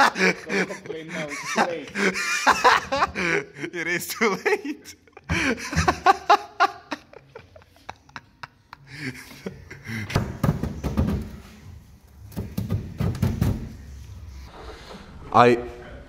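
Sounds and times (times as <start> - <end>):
pipe knocking and scraping on metal: 12.3 - 13.8.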